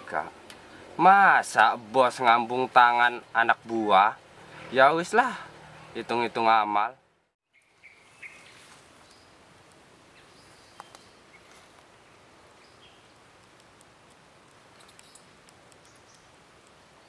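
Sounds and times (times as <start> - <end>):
background hiss: 0.0 - 17.0
bird chirps: 7.4 - 9.4, 10.1 - 13.2, 14.8 - 16.3.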